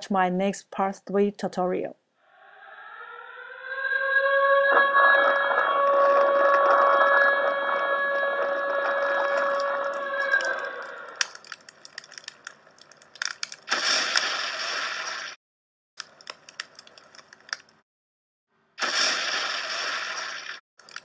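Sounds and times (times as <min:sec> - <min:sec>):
sharp crackles and clicks: 0:05.4 - 0:15.4, 0:16.0 - 0:17.8, 0:18.8 - 0:21.0.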